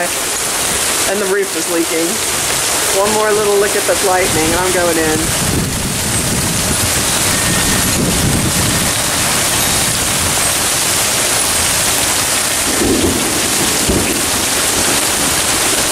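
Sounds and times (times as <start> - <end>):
heavy rain pouring: 0.0 - 15.9
thunder rumbling: 2.0 - 15.9.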